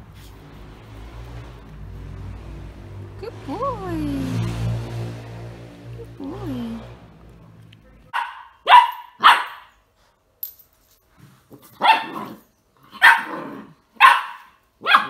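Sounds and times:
puppy barking: 8.1 - 9.8, 11.8 - 15.0.

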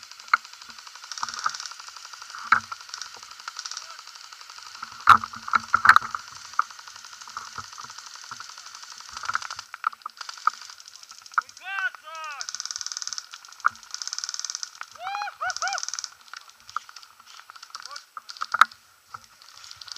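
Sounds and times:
sharp loud cracks: 9.1 - 18.6.

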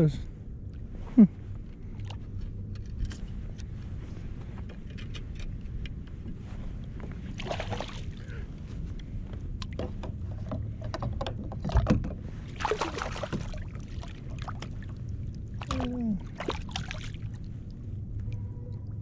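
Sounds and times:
water splashing: 7.4 - 8.3, 12.4 - 17.8.

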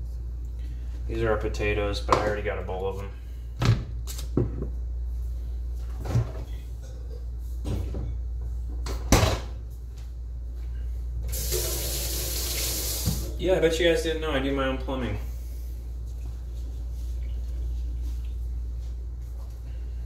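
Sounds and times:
steady low hum: 0.0 - 11.9, 12.9 - 20.0
water running from a tap: 11.3 - 13.4.

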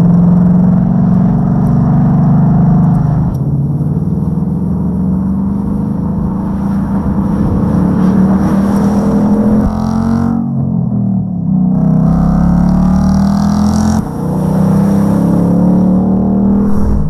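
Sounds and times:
car engine droning: 0.0 - 17.0.

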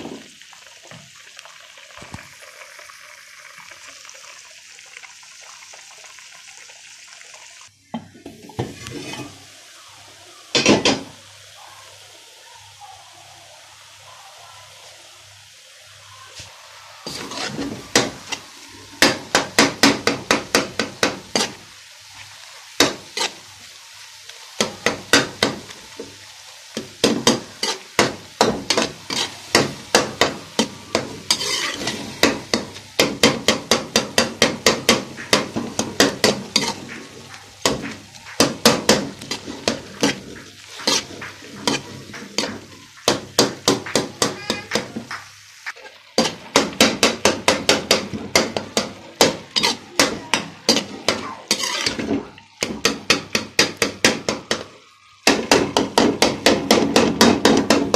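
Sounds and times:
meat frying with light sizzle: 0.0 - 57.9
metal spoon scraping a pot: 8.8 - 9.4, 17.1 - 18.4, 27.6 - 27.9, 30.6 - 32.2, 35.3 - 42.8, 49.6 - 50.1, 50.7 - 52.1.

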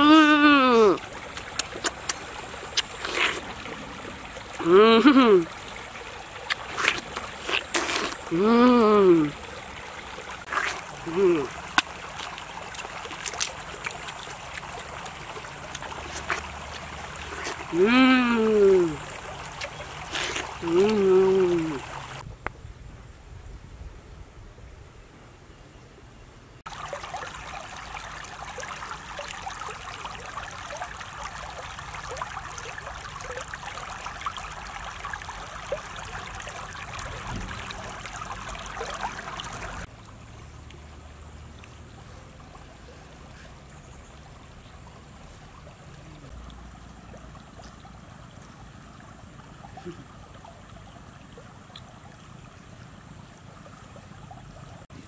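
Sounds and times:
stream water over stones: 0.0 - 22.3, 26.6 - 55.0.

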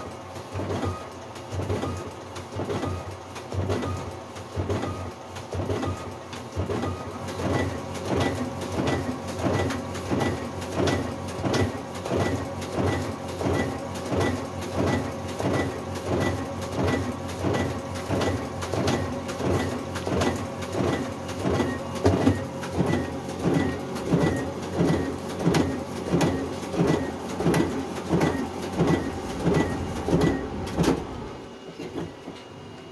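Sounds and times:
duplicator clacking printing: 0.0 - 32.6.

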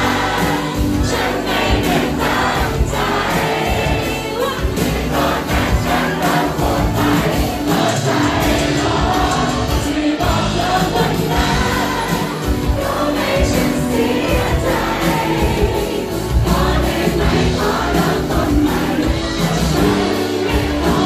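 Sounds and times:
live band playing pop song: 0.0 - 21.0.

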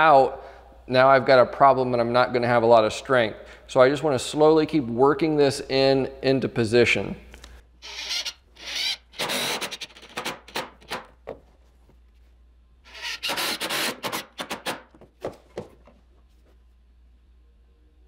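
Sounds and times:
power driver driving screws into wood: 7.9 - 11.2, 12.9 - 15.0.

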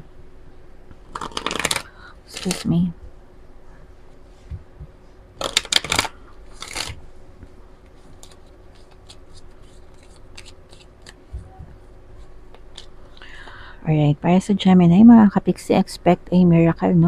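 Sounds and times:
cards shuffling by hand: 1.0 - 2.7, 5.4 - 7.0, 7.9 - 11.3, 12.2 - 13.0.

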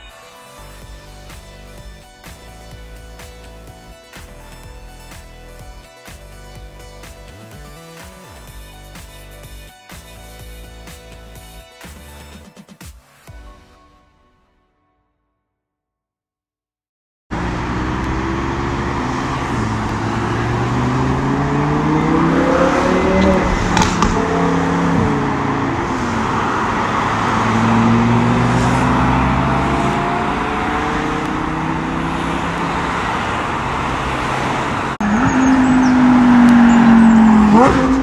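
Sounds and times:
road traffic: 17.3 - 38.0
sports car accelerating hard: 17.3 - 38.0.

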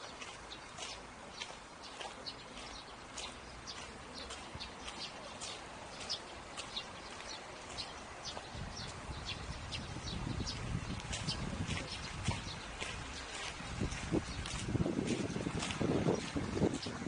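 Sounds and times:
footsteps walking: 0.0 - 9.1, 10.5 - 17.0
outdoor background hiss: 0.0 - 11.6.

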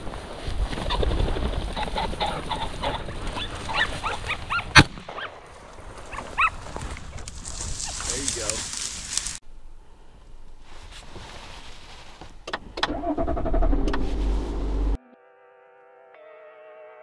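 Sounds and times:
rustling through dry grass: 0.0 - 12.4.

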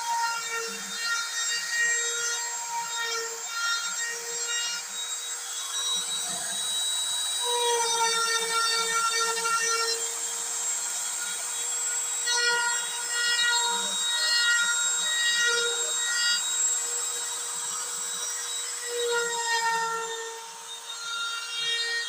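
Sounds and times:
router spindle whine: 0.0 - 22.0.

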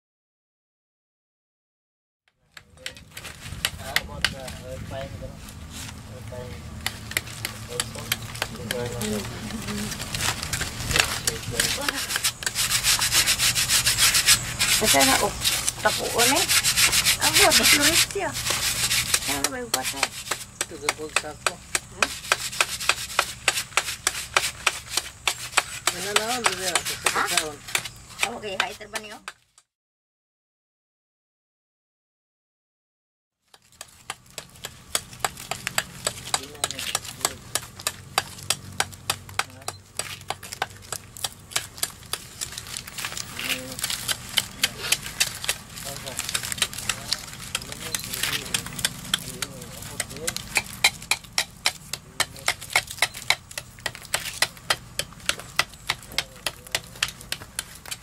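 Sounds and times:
coconut husk scraping salt: 2.8 - 29.4, 33.5 - 58.0
sharp clicking taps: 3.6 - 4.6, 6.8 - 9.0, 46.3 - 58.0.

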